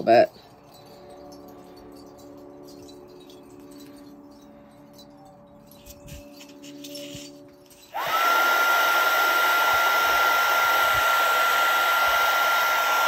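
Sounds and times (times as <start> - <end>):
heat gun fan whining: 5.9 - 13.0.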